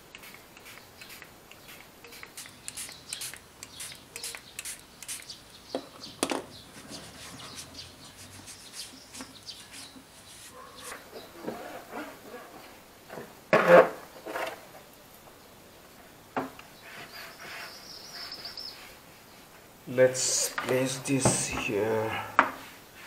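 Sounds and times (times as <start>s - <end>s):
cloth wiping: 6.7s - 12.4s.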